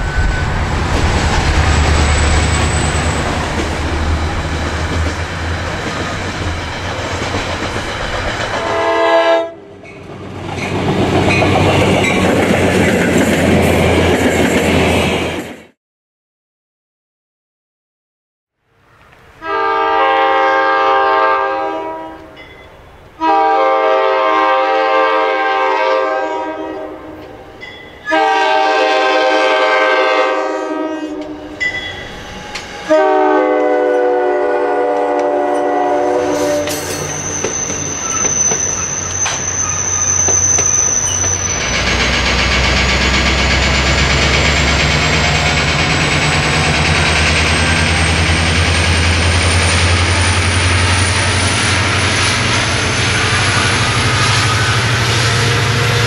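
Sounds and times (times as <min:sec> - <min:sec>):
diesel locomotive rumble and whine: 0:00.0 - 0:15.6, 0:26.8 - 0:56.0
train wheels on rails: 0:00.0 - 0:15.7, 0:27.2 - 0:56.0
train horn chord blasts: 0:08.6 - 0:09.7, 0:19.4 - 0:22.4, 0:23.2 - 0:27.4, 0:28.0 - 0:31.6, 0:32.8 - 0:37.0.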